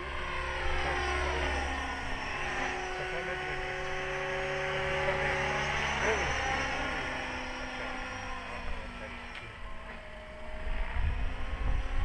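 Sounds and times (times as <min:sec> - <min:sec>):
rc helicopter rotor whine: 0:00.0 - 0:12.0
wind rumble on microphone: 0:10.5 - 0:12.0.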